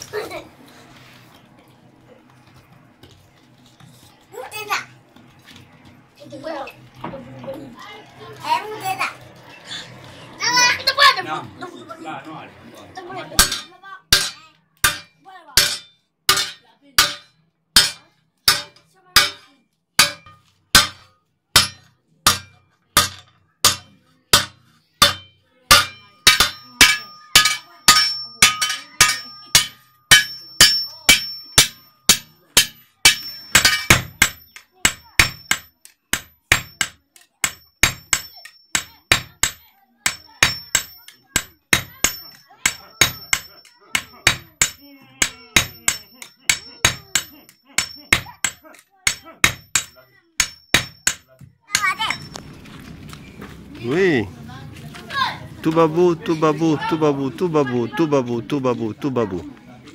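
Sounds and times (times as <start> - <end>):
hammers striking metal on anvil: 13.4 - 52.4
metal ringing: 13.4 - 52.5.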